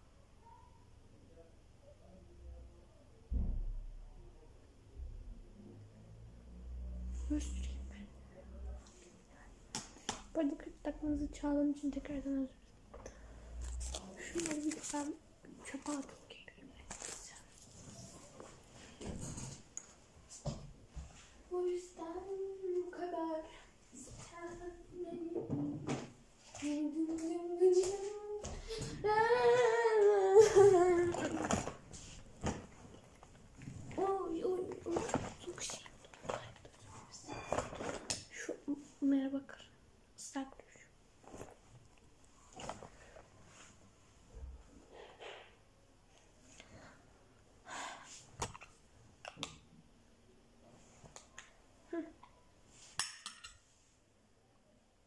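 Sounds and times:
girl singing wordless notes: 21.5 - 31.6, 33.9 - 35.9.

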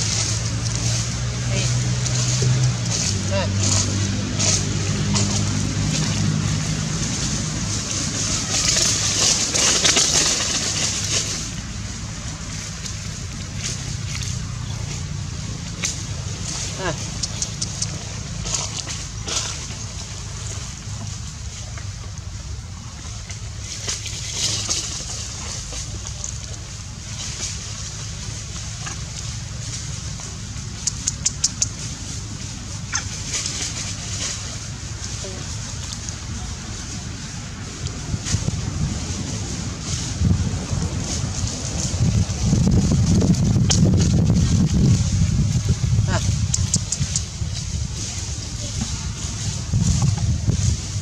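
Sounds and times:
low engine hum: 0.0 - 51.0
low rumble: 0.0 - 51.0
steady rushing outdoor noise: 0.0 - 51.0.

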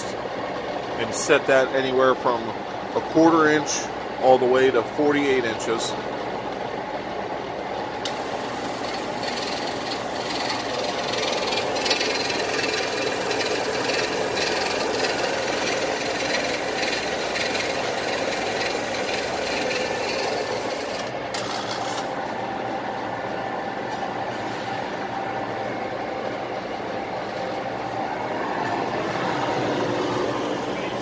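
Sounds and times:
mechanical shear running idle: 8.0 - 22.3.

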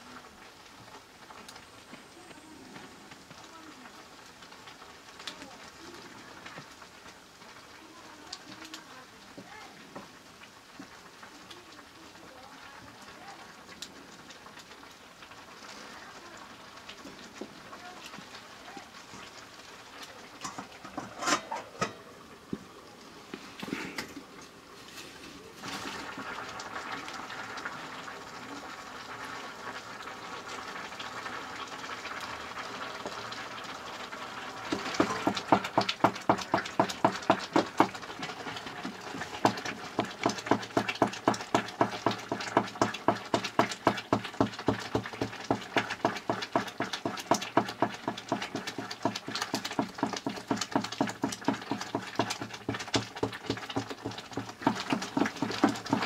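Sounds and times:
leaves sizzling in a metal pan: 0.0 - 56.0
ladle scraping a pan: 20.4 - 22.2, 24.8 - 26.2.

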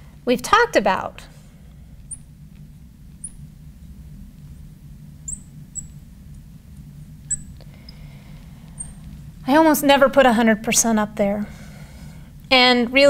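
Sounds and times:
low steady hum: 0.0 - 13.0
marker squeaking on glass: 5.3 - 6.0, 7.3 - 7.6.

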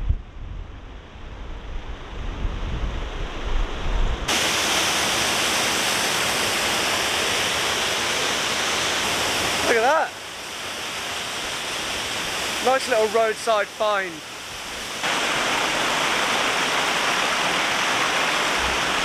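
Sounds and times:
wind buffeting microphone: 0.0 - 4.3
small waterfall rushing: 4.3 - 19.0.

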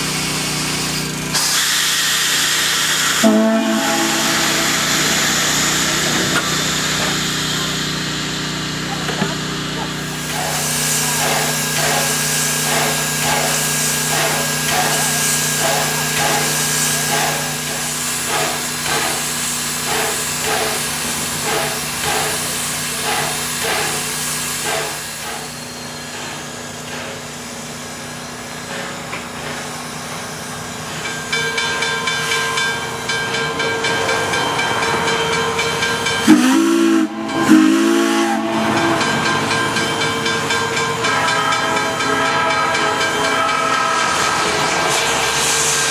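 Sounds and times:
steam locomotive hissing and pulsing: 0.0 - 45.9
steam whistle blasts: 1.4 - 6.5, 36.2 - 39.2, 41.0 - 44.7.

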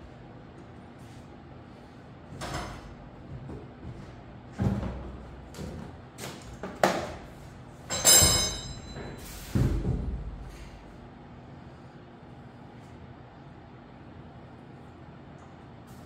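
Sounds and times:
metal part knocking with ring: 7.9 - 9.2.

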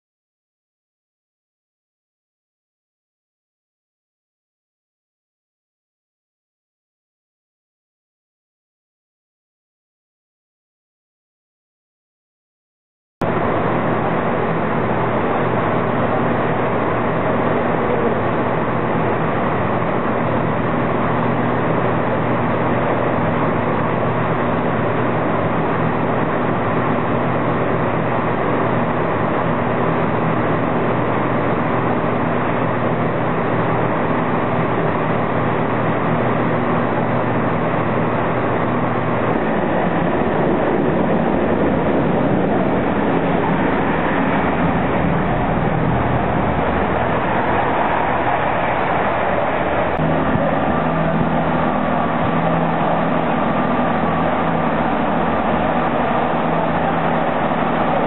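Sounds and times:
diesel train engine running: 13.2 - 58.0
rumbling train noise: 13.2 - 58.0.

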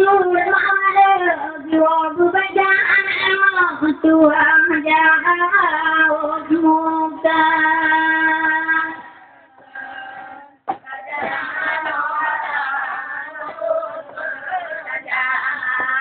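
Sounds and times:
woman singing a slow chant: 0.0 - 16.0.

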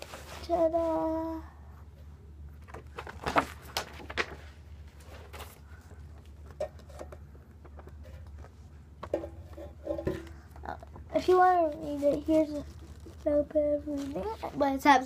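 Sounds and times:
paper pages rustling: 0.0 - 1.0, 2.5 - 8.7, 10.9 - 14.6.

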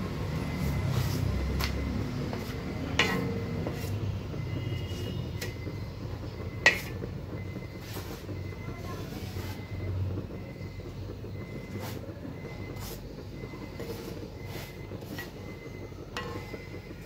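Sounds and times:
spatula scraping on iron pan: 0.6 - 5.6, 6.6 - 8.3, 12.6 - 13.1, 13.7 - 16.7.

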